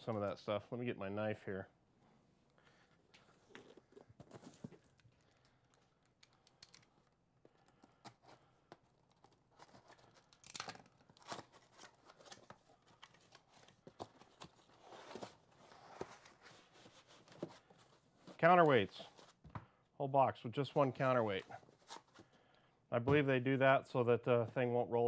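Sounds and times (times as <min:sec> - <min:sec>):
packing tape tearing: 0:09.1 - 0:13.6.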